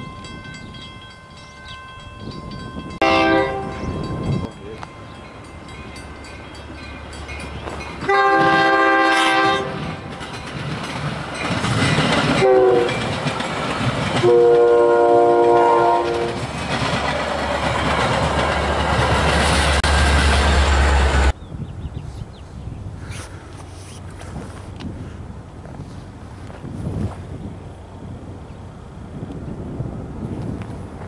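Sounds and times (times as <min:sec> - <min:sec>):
diesel locomotive rumble: 0:00.0 - 0:31.0
train horn blasts: 0:03.0 - 0:04.0, 0:08.0 - 0:10.0, 0:12.4 - 0:13.1, 0:14.2 - 0:16.4
train cars clattering on rails: 0:03.8 - 0:21.4.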